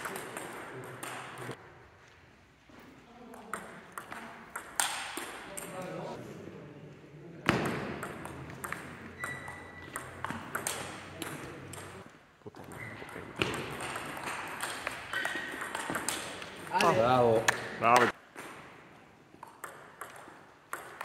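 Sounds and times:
ball clicking off paddles: 0.0s - 1.6s, 3.5s - 5.8s, 7.5s - 18.6s, 19.4s - 21.0s
ball bouncing on table: 7.4s - 18.6s, 19.4s - 21.0s.

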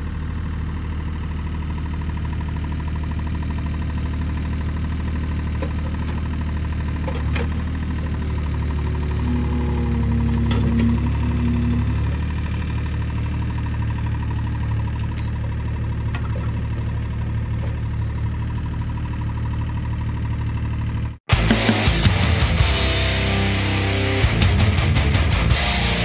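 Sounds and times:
excavator diesel engine running: 0.0s - 26.0s
hydraulic whine: 6.9s - 19.6s.

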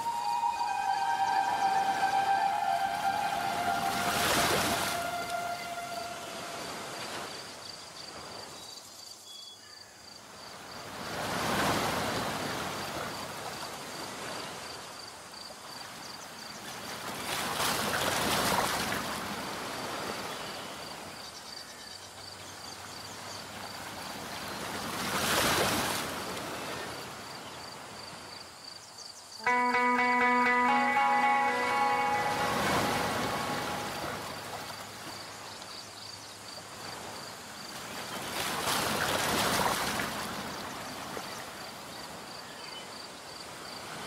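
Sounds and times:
guitar music: 0.0s - 6.4s, 29.4s - 34.7s
waves breaking: 0.0s - 7.6s, 10.9s - 14.5s, 16.9s - 20.4s, 23.7s - 27.2s, 29.5s - 35.6s, 36.8s - 41.9s.

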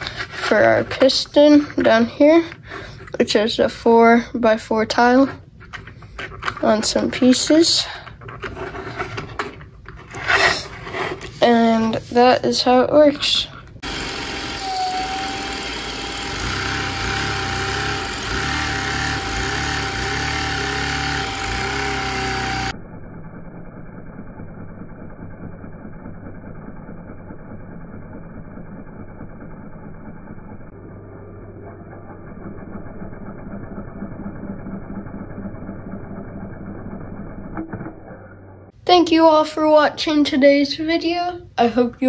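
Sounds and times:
vacuum cleaner whining: 13.8s - 22.8s.

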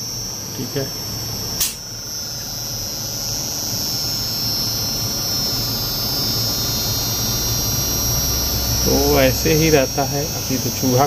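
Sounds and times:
compressor high whine: 0.0s - 11.0s
low mains hum: 0.0s - 11.0s.

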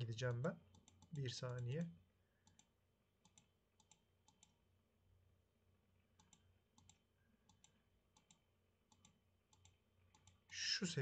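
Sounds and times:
computer mouse clicks: 0.7s - 4.6s, 6.2s - 10.6s.

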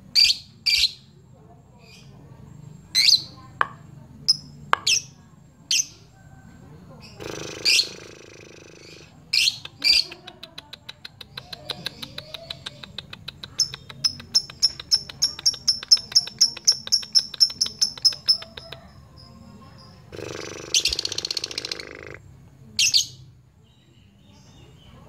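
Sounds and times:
lovebird rapid chirps: 0.1s - 1.0s, 7.1s - 22.2s
bird harsh rasping: 7.1s - 10.1s, 20.1s - 22.3s
bird squawk: 7.2s - 10.1s, 20.2s - 22.2s.

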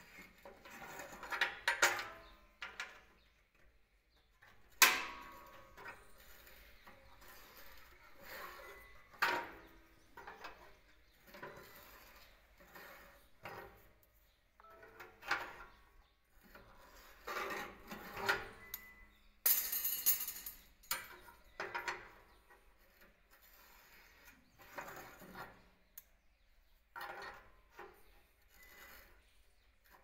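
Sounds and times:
steel rebar clinking and scraping: 0.0s - 3.2s, 4.4s - 26.0s, 26.8s - 30.0s.

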